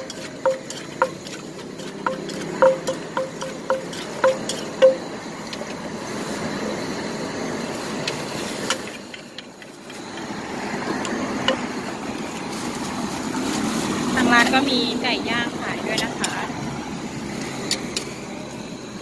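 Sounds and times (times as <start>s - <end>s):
spoon clicking against mortar: 0.0s - 5.0s
wooden pestle striking clay mortar: 0.0s - 5.1s
street traffic hum: 0.0s - 19.0s.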